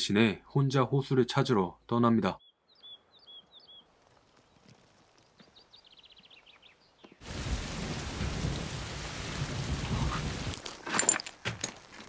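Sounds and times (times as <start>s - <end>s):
small birds chirping: 1.4s - 7.2s.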